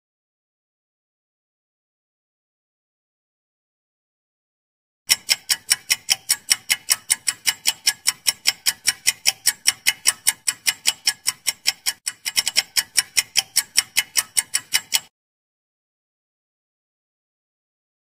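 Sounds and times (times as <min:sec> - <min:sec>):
fast clock ticking: 0:05.1 - 0:15.1.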